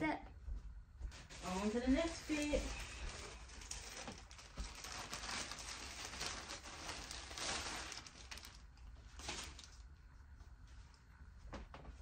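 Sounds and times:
plastic bag crinkling: 0:01.2 - 0:10.0.

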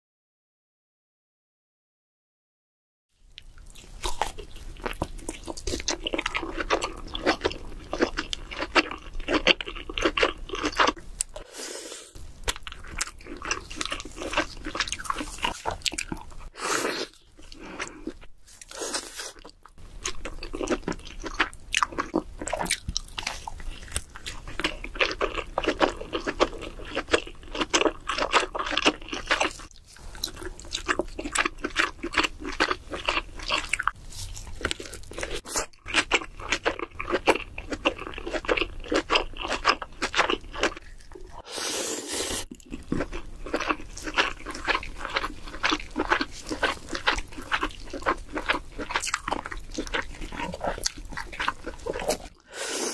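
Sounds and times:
close-miked chewing: 0:03.3 - 0:11.5, 0:12.2 - 0:52.9.

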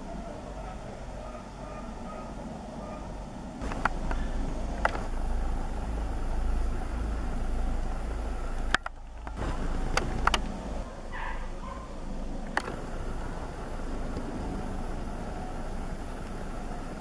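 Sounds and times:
distant helicopter rumble: 0:00.0 - 0:17.0
sharp clicks: 0:03.6 - 0:05.2, 0:08.5 - 0:10.8, 0:12.4 - 0:13.3.

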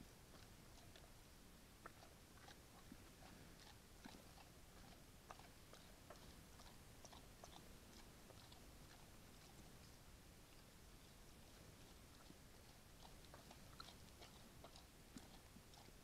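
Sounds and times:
bear chewing and crunching: 0:00.2 - 0:01.2, 0:01.8 - 0:09.9, 0:10.5 - 0:16.0.

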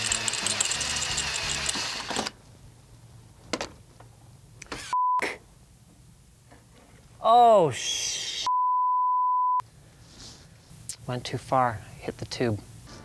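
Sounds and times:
power drill drilling into metal: 0:00.0 - 0:02.3
censor bleep: 0:04.9 - 0:05.3, 0:08.4 - 0:09.6.

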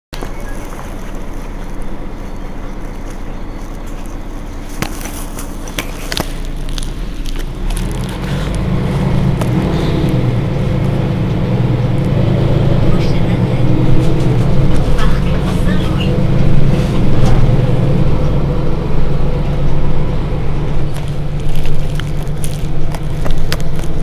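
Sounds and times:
bus engine idling: 0:00.1 - 0:24.0.

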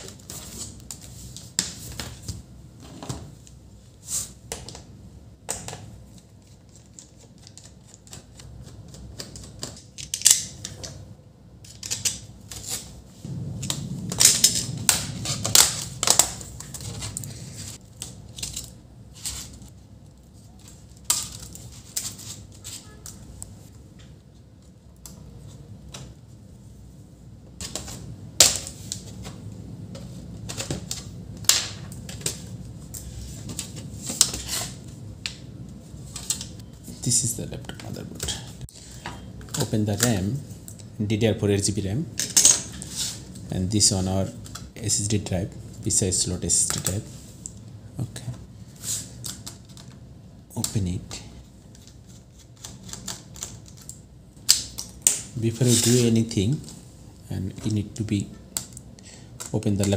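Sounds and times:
laptop case parts clicking: 0:06.9 - 0:11.0.

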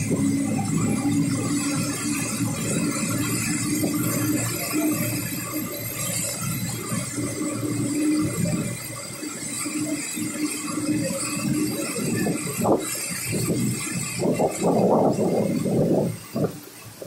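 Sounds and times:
floodwater rushing through street: 0:00.0 - 0:06.8.

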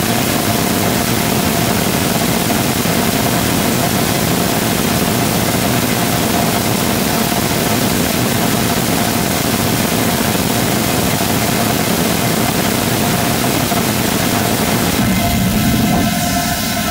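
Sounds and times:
rocket engine roaring: 0:00.0 - 0:16.9
steady tone: 0:14.4 - 0:16.9.

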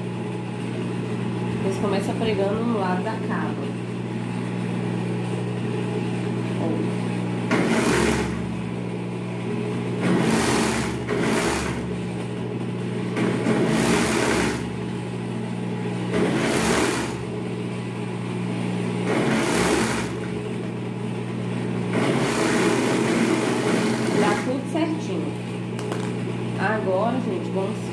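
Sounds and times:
motor hum: 0:00.0 - 0:27.9
overlock sewing machine stitching: 0:07.5 - 0:08.5, 0:10.0 - 0:12.0, 0:13.1 - 0:14.8, 0:16.1 - 0:17.3, 0:19.0 - 0:20.4, 0:21.9 - 0:24.6.

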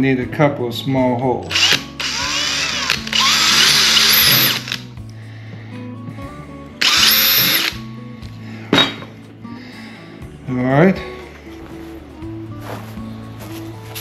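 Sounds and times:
cordless drill boring into plastic: 0:01.5 - 0:04.8, 0:06.8 - 0:07.8.

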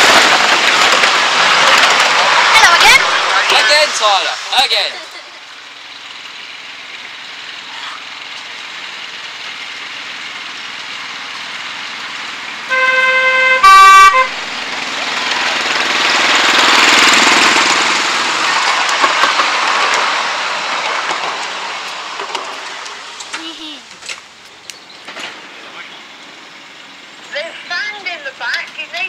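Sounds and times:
miniature locomotive engine passing: 0:00.0 - 0:29.0
locomotive horn: 0:12.7 - 0:14.5.

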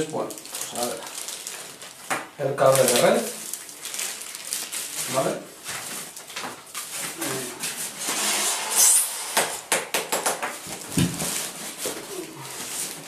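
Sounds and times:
plastic bag crinkling: 0:00.2 - 0:07.1.

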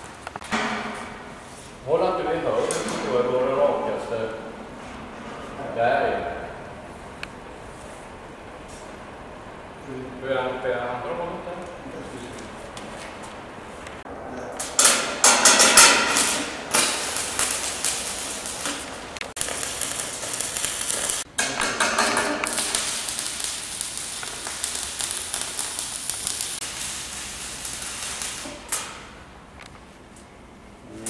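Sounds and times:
arc welding crackling hiss: 0:14.5 - 0:29.7.

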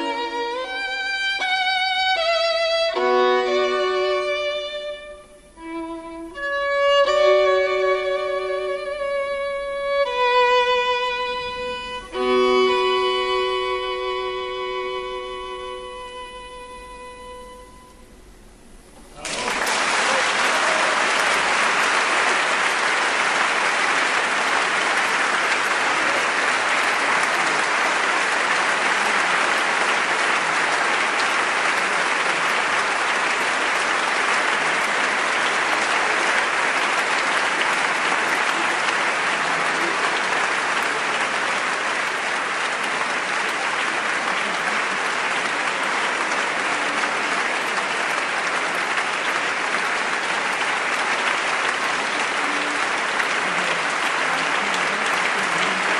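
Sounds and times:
audience applauding: 0:00.0 - 0:16.2, 0:19.0 - 0:55.9
music: 0:00.0 - 0:18.3.

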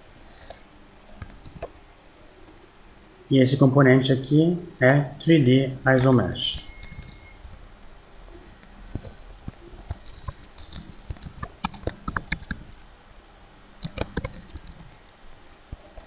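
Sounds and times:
keyboard typing: 0:00.3 - 0:01.8, 0:05.9 - 0:12.9, 0:13.8 - 0:16.0.

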